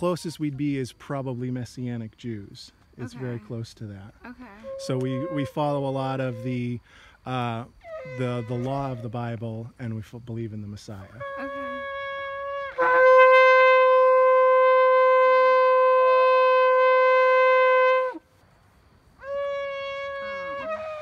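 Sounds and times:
shofar blasts: 4.6s - 6.8s, 7.8s - 9.2s, 11.1s - 18.2s, 19.2s - 21.0s.

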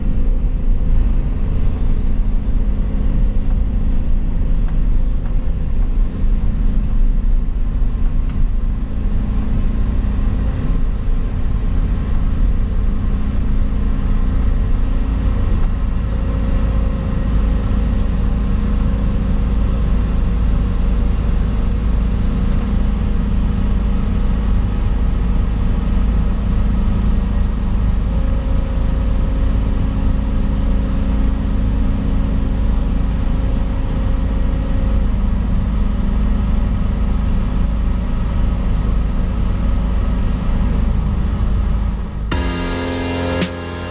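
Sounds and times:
excavator diesel engine rumble: 0.0s - 43.9s
hydraulic whine: 42.3s - 43.9s.

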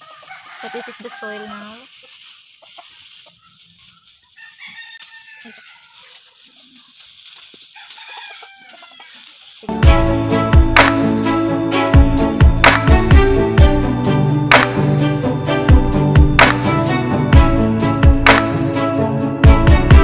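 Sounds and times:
rooster crowing: 0.0s - 1.8s, 4.3s - 6.2s, 7.7s - 9.3s
chickens clucking: 0.0s - 9.7s
loud music with steady beat: 9.7s - 20.0s.

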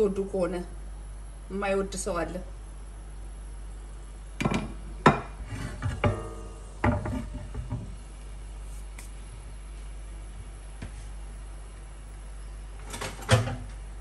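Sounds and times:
cookware knocking and clattering: 4.4s - 7.8s
ringing metallic clank: 6.0s - 6.8s.

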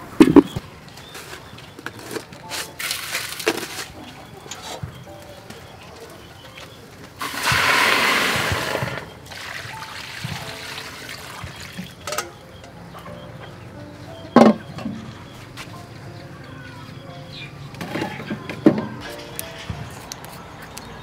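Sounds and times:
water pouring into a wok: 7.2s - 11.8s.

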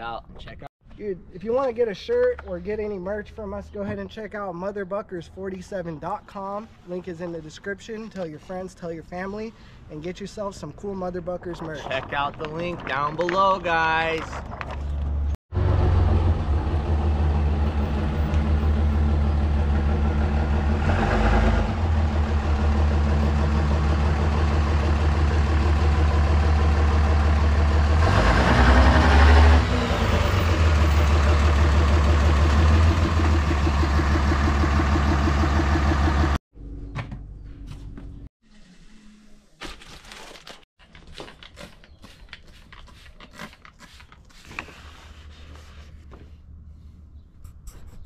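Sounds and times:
diesel truck engine running: 15.5s - 36.4s.

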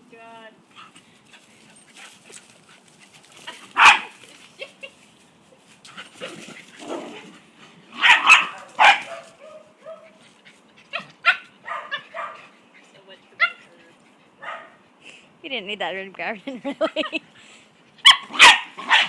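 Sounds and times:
dogs barking: 3.8s - 4.2s, 8.0s - 10.2s, 10.9s - 12.5s, 14.4s - 14.8s, 18.0s - 19.0s.

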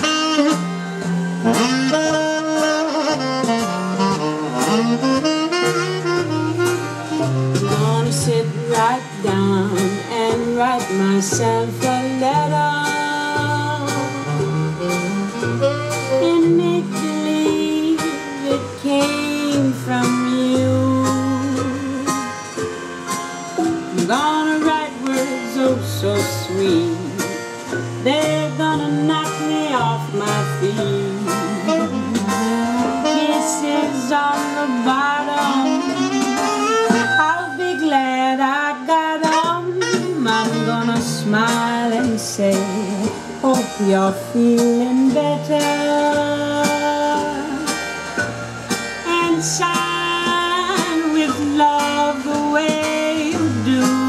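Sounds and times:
swing jazz instrumental: 0.0s - 54.0s.

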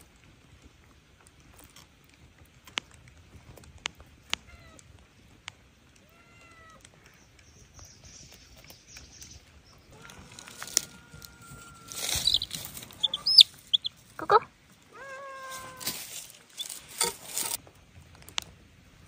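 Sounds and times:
cat meowing softly: 6.0s - 6.8s, 14.2s - 15.9s.

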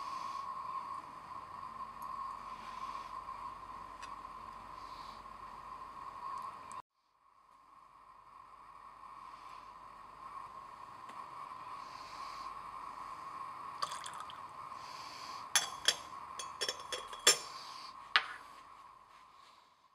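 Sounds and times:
steady low hiss: 0.0s - 19.9s
glass clinking on glass rim: 15.6s - 17.6s.

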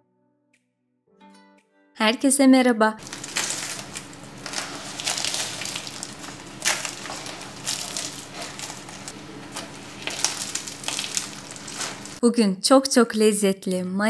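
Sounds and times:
pastry crust crackling as torn: 3.0s - 12.2s.

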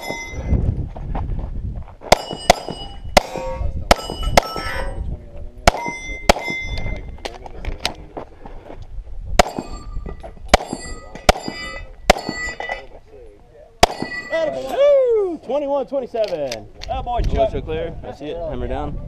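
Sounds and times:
bullets ringing on steel targets: 0.0s - 0.5s, 2.1s - 5.0s, 5.7s - 7.1s, 9.4s - 12.9s, 13.8s - 14.7s
pistol shots: 2.1s - 4.7s, 5.7s - 6.7s, 9.4s - 9.8s, 10.5s - 12.4s, 13.8s - 14.3s.

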